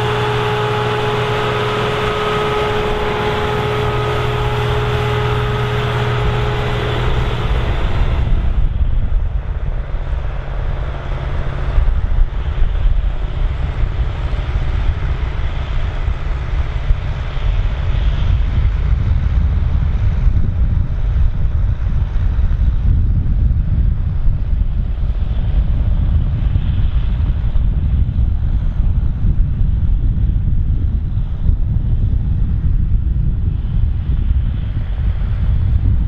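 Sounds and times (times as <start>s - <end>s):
tractor diesel engine rumbling: 0.0s - 17.6s
wind buffeting the microphone: 0.0s - 36.0s.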